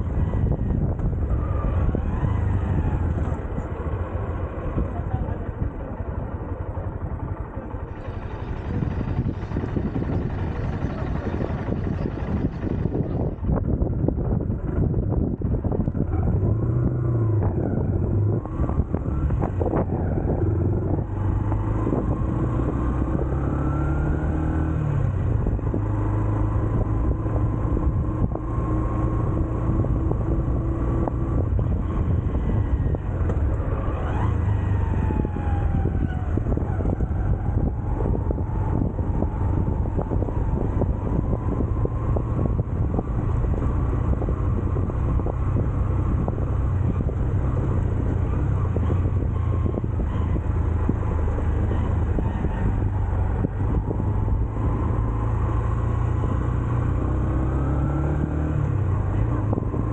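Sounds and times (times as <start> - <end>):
motorcycle engine running: 2.9 - 57.4.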